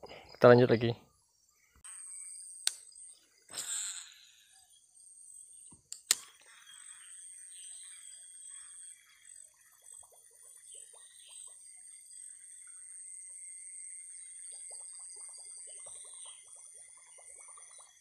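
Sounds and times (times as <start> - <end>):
high-pitched insect buzzing: 1.6 - 5.6
sharp clicks: 5.7 - 6.5.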